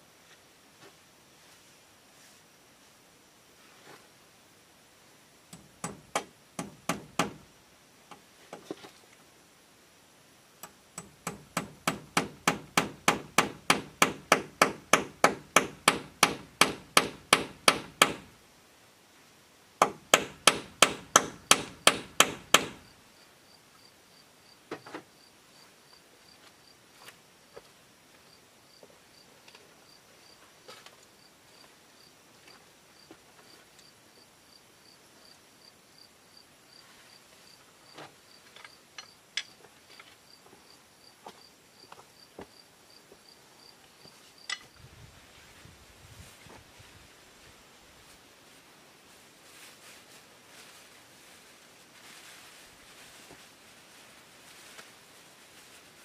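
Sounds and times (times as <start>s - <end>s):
hammer striking wood: 5.6s - 7.4s, 10.6s - 18.3s, 19.8s - 22.8s.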